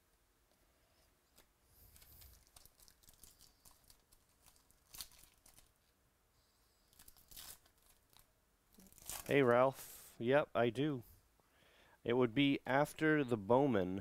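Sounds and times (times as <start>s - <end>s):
trading cards rustling: 1.3s - 5.7s
card pack wrapper crinkling: 1.3s - 5.8s, 6.9s - 9.5s.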